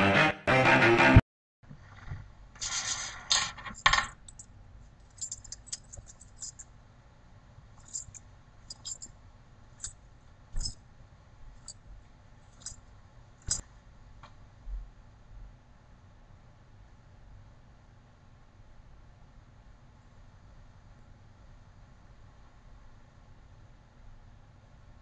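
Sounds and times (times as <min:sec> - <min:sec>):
metal chain jingling and scraping: 0:02.6 - 0:06.7, 0:07.8 - 0:09.1, 0:09.8 - 0:10.0, 0:10.6 - 0:10.8, 0:12.4 - 0:12.8, 0:13.4 - 0:13.6
chain links clinking: 0:03.4 - 0:06.7, 0:07.8 - 0:09.1, 0:09.8 - 0:10.0, 0:10.6 - 0:10.8, 0:12.5 - 0:12.8, 0:13.4 - 0:13.6.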